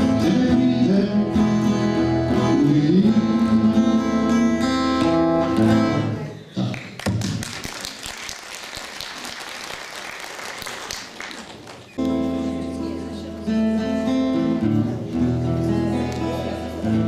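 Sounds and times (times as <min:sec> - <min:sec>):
acoustic guitar chords: 0:00.0 - 0:06.7, 0:12.0 - 0:17.0
audience clapping: 0:06.5 - 0:12.2.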